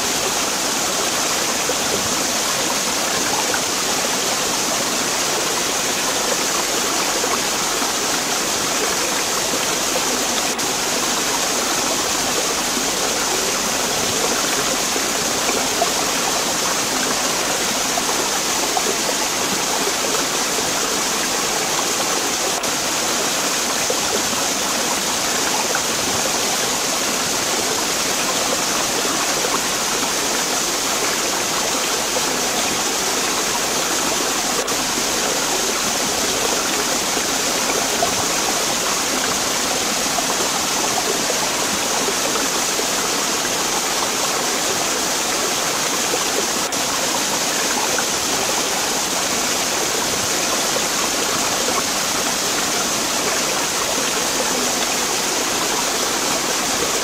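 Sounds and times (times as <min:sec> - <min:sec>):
stream water rushing: 0:00.0 - 0:57.0.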